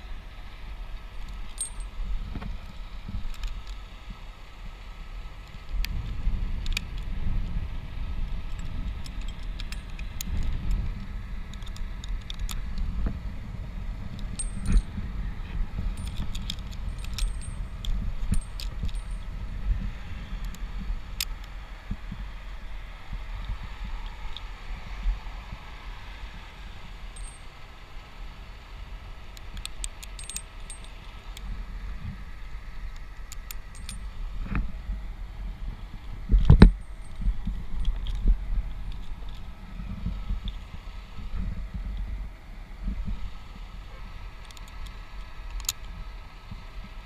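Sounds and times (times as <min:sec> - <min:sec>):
steady low rumble: 0:00.0 - 0:47.0
metal climbing hardware clinking: 0:01.2 - 0:02.0, 0:08.5 - 0:10.7, 0:14.2 - 0:19.5, 0:27.0 - 0:27.8, 0:29.4 - 0:31.2, 0:33.3 - 0:34.2, 0:36.4 - 0:38.3.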